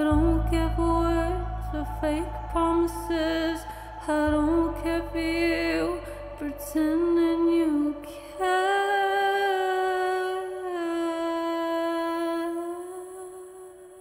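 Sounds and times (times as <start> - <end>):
low drone: 0.0 - 10.4.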